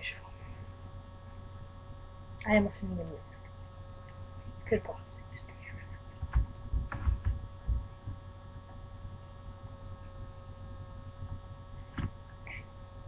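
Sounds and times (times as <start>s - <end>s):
electrical hum: 0.0s - 13.0s
dull low thumps: 6.2s - 12.3s.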